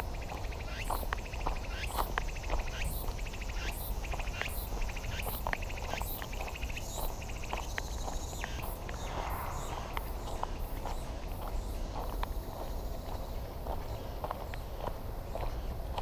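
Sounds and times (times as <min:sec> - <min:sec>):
insects trilling: 0:00.0 - 0:16.0
footsteps crunching on dirt path: 0:00.2 - 0:16.0
low steady rumble: 0:08.8 - 0:11.4.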